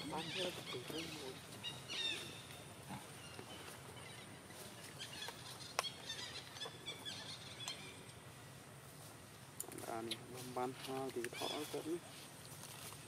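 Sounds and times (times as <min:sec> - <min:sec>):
faint outdoor ambience: 0:00.0 - 0:13.0
high chirps of small animals: 0:11.2 - 0:12.0.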